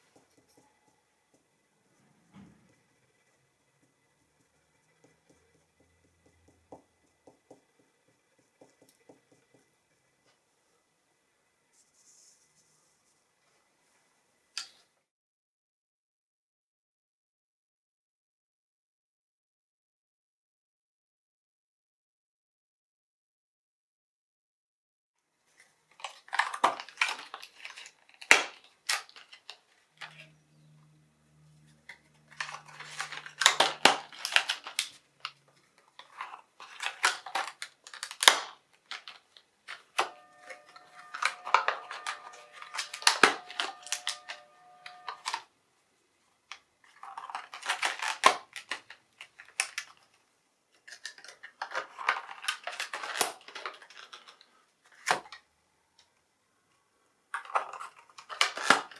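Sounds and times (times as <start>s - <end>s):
boxes clattering on a table: 36.1s - 45.4s.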